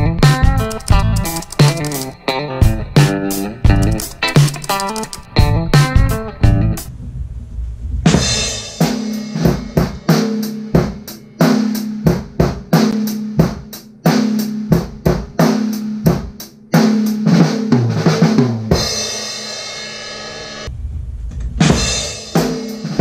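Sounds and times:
drum kit playing a beat: 0:00.0 - 0:06.9, 0:08.5 - 0:20.4, 0:21.6 - 0:23.0
bass drum: 0:02.6 - 0:04.4, 0:05.4 - 0:10.0.

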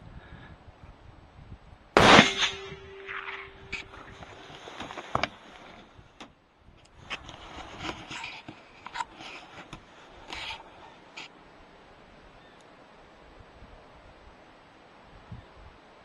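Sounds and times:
sharp cracks: 0:02.0 - 0:05.4
rifle handling clicks and scrapes: 0:07.1 - 0:11.3.

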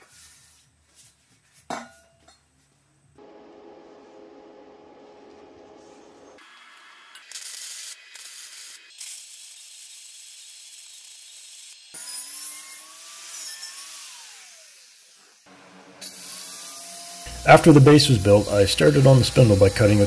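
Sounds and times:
welder arc crackling and hissing: 0:03.4 - 0:11.9, 0:17.2 - 0:20.0.

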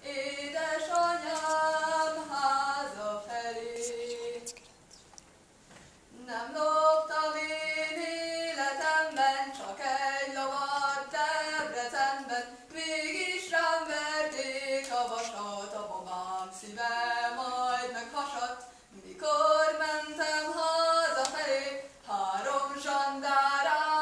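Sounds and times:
young woman singing folk song: 0:00.0 - 0:04.5, 0:06.1 - 0:24.0.

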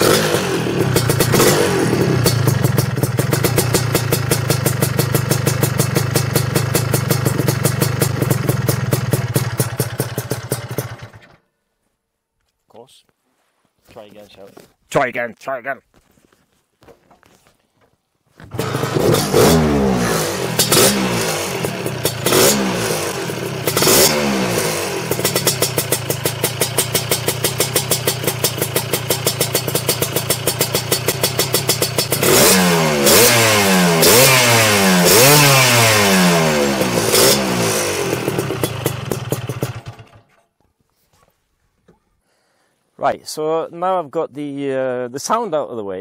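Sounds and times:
scooter engine revving: 0:00.0 - 0:11.4, 0:18.4 - 0:40.4.

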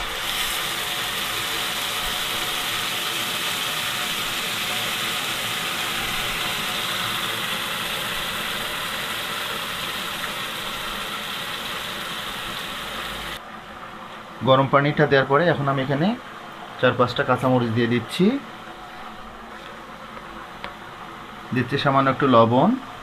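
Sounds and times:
hot oil sizzling: 0:00.0 - 0:13.4.

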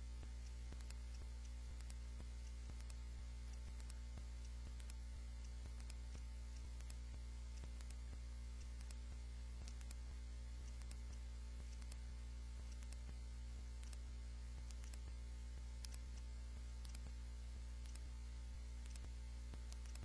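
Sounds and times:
low electrical hum: 0:00.0 - 0:20.0
computer mouse scroll clicks: 0:00.3 - 0:08.0, 0:08.6 - 0:09.0, 0:09.6 - 0:10.0, 0:10.6 - 0:12.0, 0:12.6 - 0:13.2, 0:13.8 - 0:15.1, 0:15.8 - 0:17.1, 0:17.8 - 0:18.1, 0:18.8 - 0:20.0.

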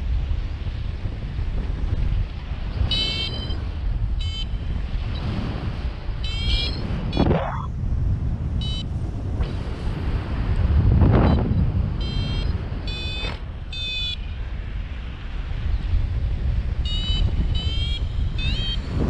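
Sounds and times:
wind rushing over microphone: 0:00.0 - 0:19.0
high electronic beeping: 0:06.3 - 0:07.7
rising whoosh: 0:07.2 - 0:07.8.

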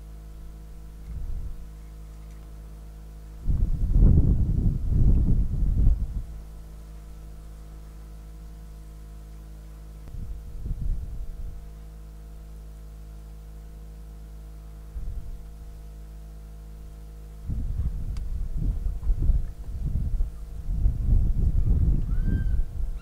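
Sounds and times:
electrical hum: 0:00.0 - 0:23.0.

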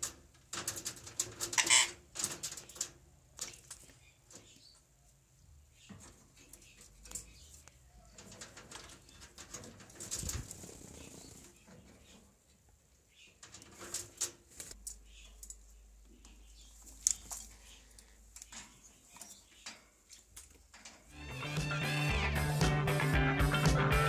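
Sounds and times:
wings flapping: 0:08.2 - 0:11.6.

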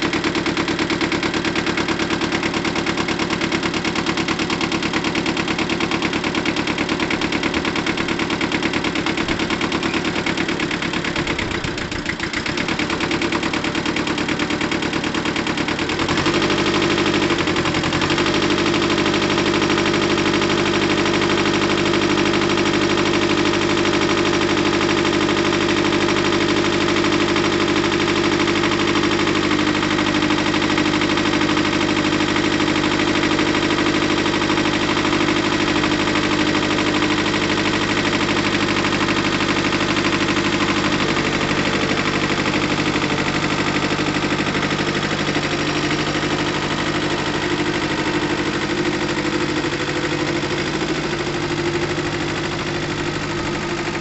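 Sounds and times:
diesel tractor engine idling: 0:00.0 - 0:54.0.

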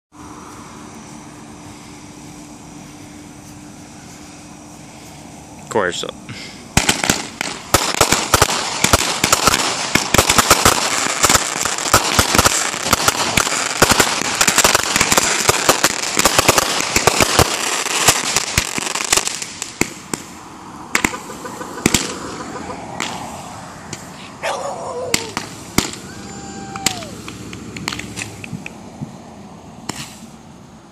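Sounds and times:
fireworks bangs and crackling: 0:06.7 - 0:24.2, 0:25.0 - 0:29.2, 0:29.8 - 0:30.4.

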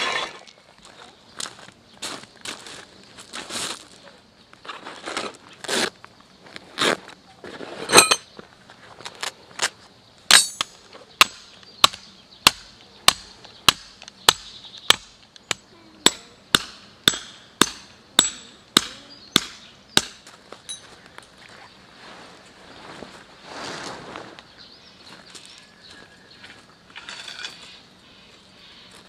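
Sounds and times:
metal pegs clinking: 0:07.9 - 0:08.3, 0:10.3 - 0:10.8, 0:20.7 - 0:20.9
tent peg hammered into stony ground: 0:10.3 - 0:20.8.

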